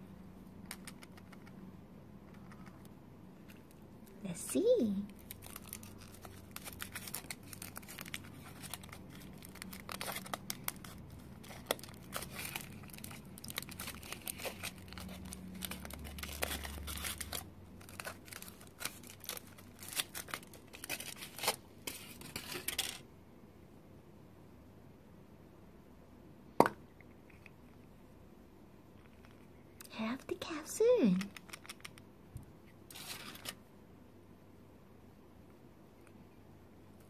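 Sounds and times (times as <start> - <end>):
foil wrapper crinkling: 5.1 - 23.0.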